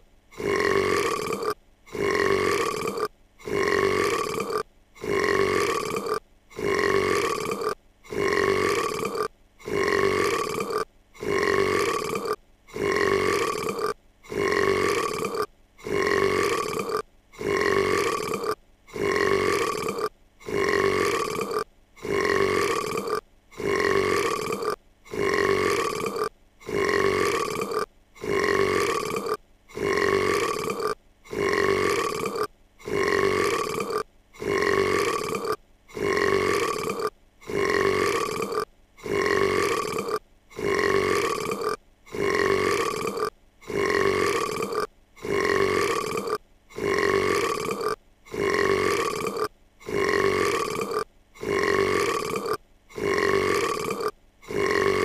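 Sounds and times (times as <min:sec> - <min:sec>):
cartoon girl burping loudly: 0:00.3 - 0:55.0.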